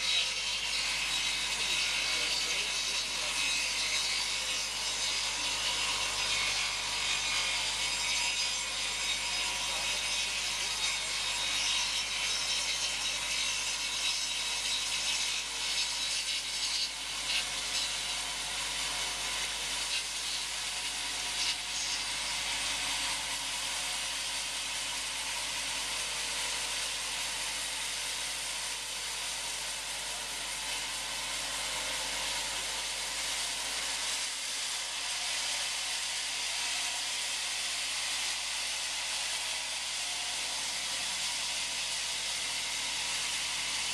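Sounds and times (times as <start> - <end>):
bandsaw cutting through log: 0.0 - 43.9.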